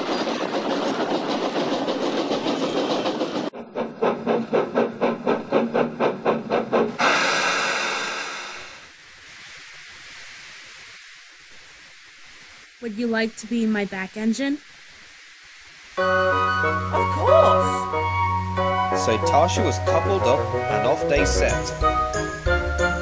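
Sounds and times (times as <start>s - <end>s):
steam locomotive chuffing: 0.0s - 8.9s, 17.9s - 23.0s
long hiss of steam: 7.0s - 18.7s.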